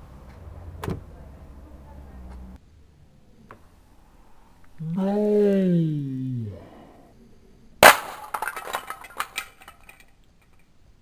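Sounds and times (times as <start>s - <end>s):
plastic bricks clattering: 7.8s - 10.7s
plastic model cracking on concrete: 7.8s - 10.7s.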